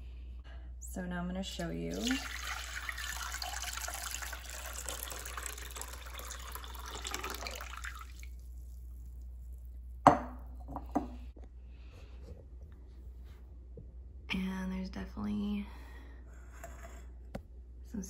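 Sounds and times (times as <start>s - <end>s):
water pouring into glass bowl: 1.9s - 8.8s
glass bowl knocking on stone: 10.0s - 11.2s.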